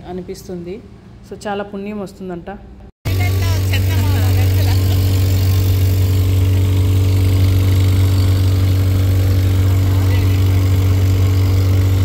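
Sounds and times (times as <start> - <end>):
motorboat engine running: 3.1 - 12.0.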